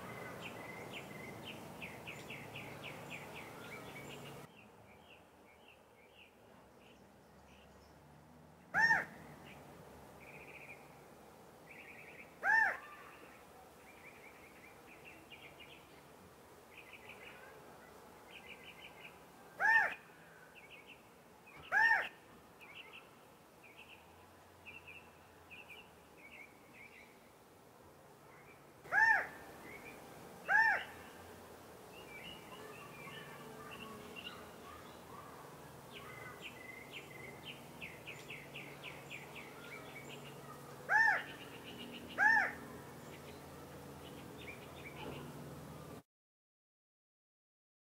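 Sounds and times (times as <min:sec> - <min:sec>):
quail calling: 0:08.8 - 0:09.1, 0:12.4 - 0:12.9, 0:19.6 - 0:20.0, 0:21.7 - 0:22.2, 0:28.9 - 0:29.4, 0:30.5 - 0:30.9, 0:40.9 - 0:41.3, 0:42.2 - 0:42.6.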